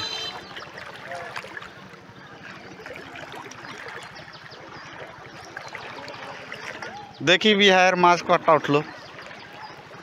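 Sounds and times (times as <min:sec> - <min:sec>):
flood water running: 0:00.0 - 0:10.0
water dripping and splashing: 0:00.2 - 0:10.0.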